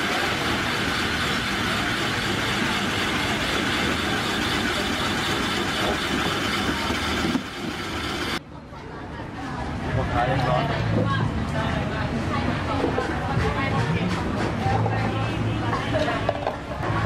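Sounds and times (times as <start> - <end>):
ice machine scraping ice: 0.0 - 8.4
motor noise: 0.0 - 8.4.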